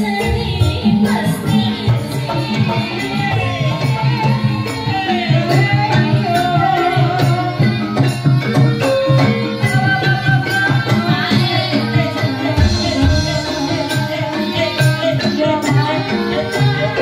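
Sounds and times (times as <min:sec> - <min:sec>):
low gamelan tones: 0:00.0 - 0:17.0.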